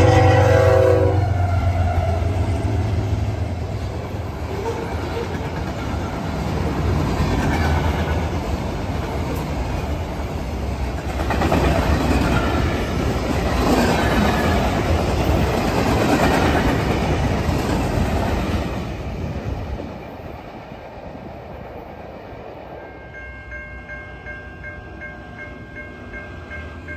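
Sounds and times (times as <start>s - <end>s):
freight train wheels clacking on rails: 2.0s - 20.7s.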